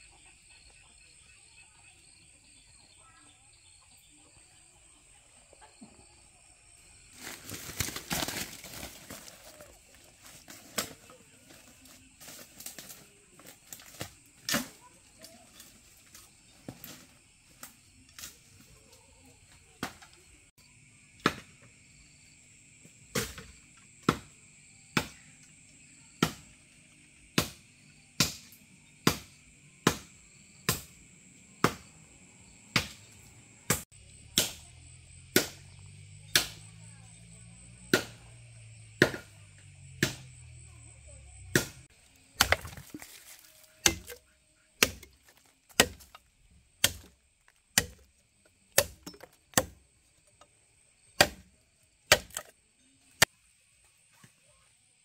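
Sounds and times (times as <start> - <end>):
insects droning: 0.0 - 55.0
hand tool striking: 42.4 - 44.2, 44.8 - 46.2.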